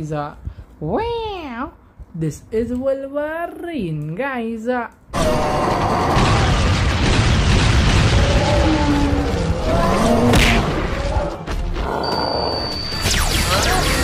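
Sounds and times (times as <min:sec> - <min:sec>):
explosion booming and rumbling: 0:05.2 - 0:11.8
music: 0:10.6 - 0:14.0.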